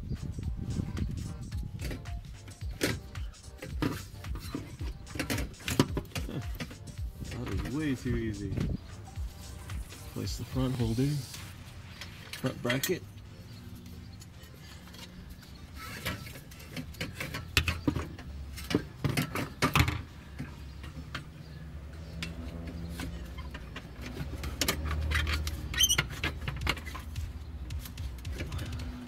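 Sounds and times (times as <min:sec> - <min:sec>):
short squeak: 0:25.1 - 0:26.2.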